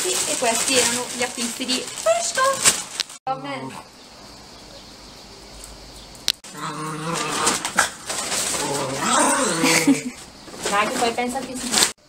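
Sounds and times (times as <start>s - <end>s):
dogs growling: 3.3s - 4.0s, 6.4s - 10.2s.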